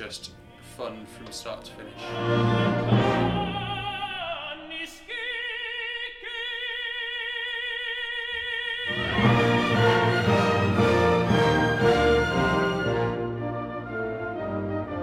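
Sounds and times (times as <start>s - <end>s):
orchestra playing: 0.0s - 4.2s, 8.9s - 15.0s
operatic singing: 1.7s - 14.4s.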